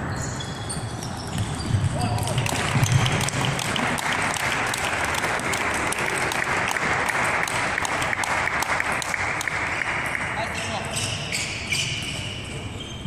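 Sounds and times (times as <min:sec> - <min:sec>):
spectators applauding: 0:02.0 - 0:10.7.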